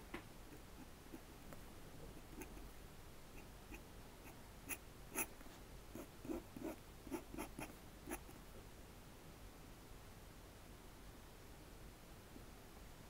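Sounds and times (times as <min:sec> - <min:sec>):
pen nib scratching paper: 0:02.2 - 0:02.7, 0:03.4 - 0:08.4.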